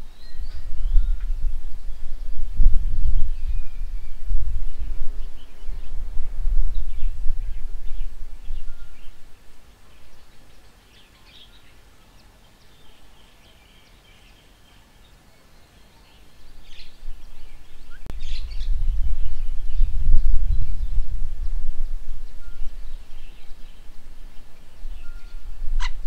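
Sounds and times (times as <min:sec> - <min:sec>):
low rumble: 0:00.0 - 0:09.6, 0:16.8 - 0:26.0
small birds chirping: 0:00.0 - 0:26.0.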